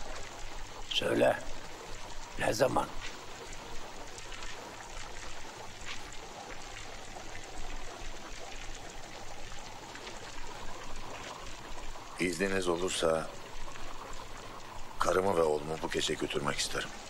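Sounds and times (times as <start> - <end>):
film soundtrack hiss: 0.0 - 17.0
faint ticks: 1.5 - 12.2.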